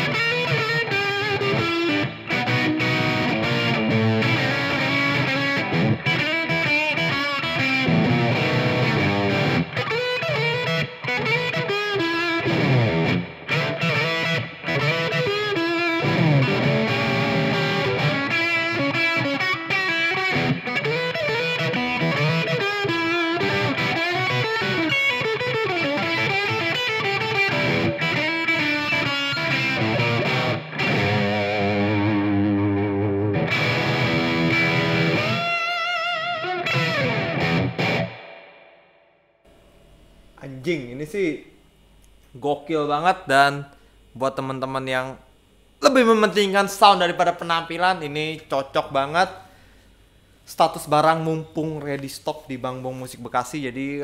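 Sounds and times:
electric guitar through amplifier: 0.0s - 43.1s.

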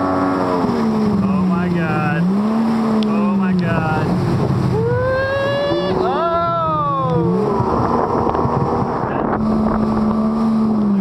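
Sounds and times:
jet ski engine revving: 0.0s - 11.0s
wind and water rushing: 0.0s - 11.0s.

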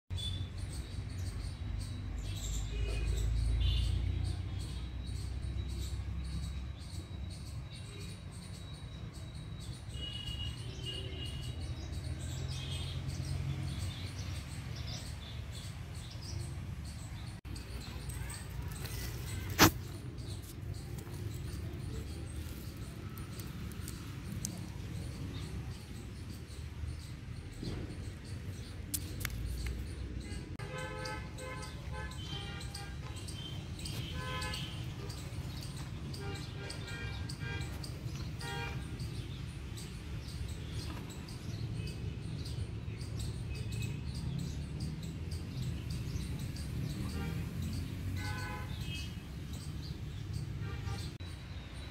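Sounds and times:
high chirps and clicks: 27.6s - 30.6s.

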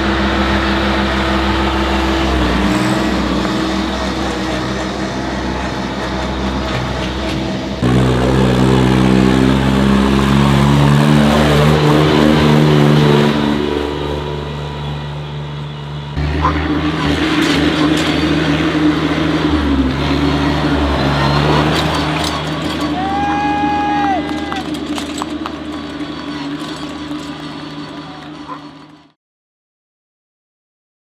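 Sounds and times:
deeper engine note: 0.0s - 29.2s
tractor engine under load: 0.0s - 29.2s.

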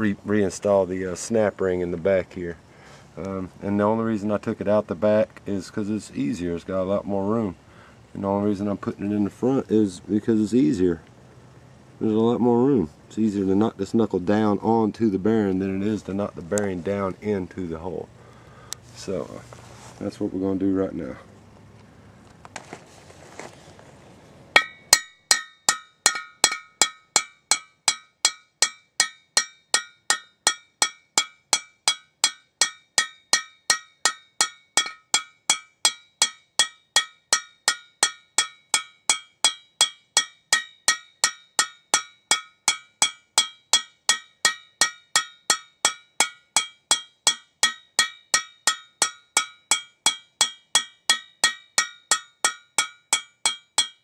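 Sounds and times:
hammer striking metal: 24.6s - 54.0s.

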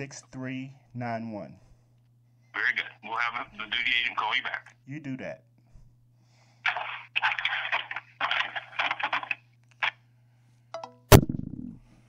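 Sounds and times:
low phone line hum: 0.0s - 12.0s
muffled sounds on phone line: 1.6s - 5.8s, 6.4s - 10.5s.

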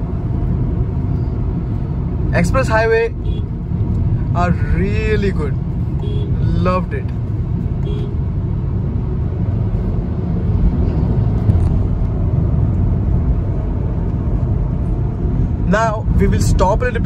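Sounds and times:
car cabin road and engine rumble: 0.0s - 17.0s.

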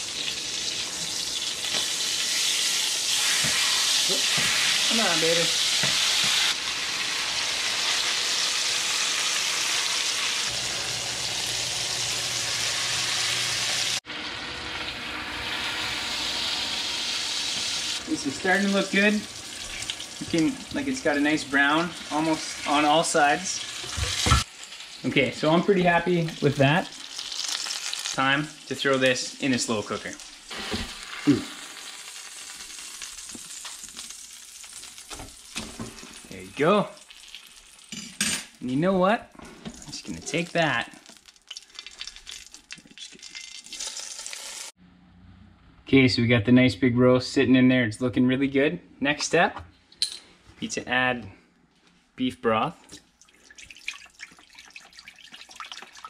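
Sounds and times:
meat sizzling in grease: 0.0s - 38.6s, 39.8s - 44.8s.

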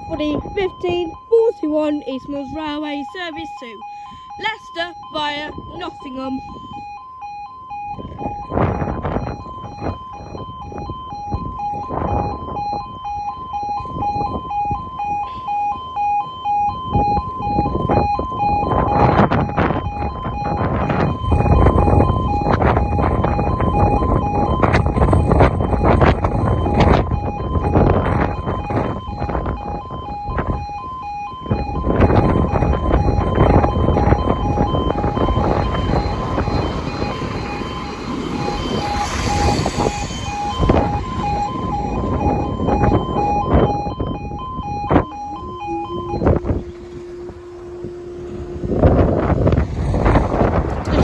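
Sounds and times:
two-tone electronic warning alarm: 0.0s - 51.0s
diesel train rumble: 18.6s - 30.5s, 31.6s - 51.0s.

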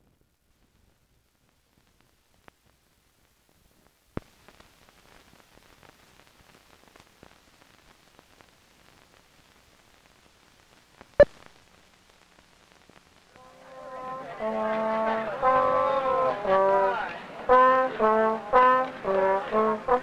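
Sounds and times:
film soundtrack crackle: 0.0s - 20.0s.

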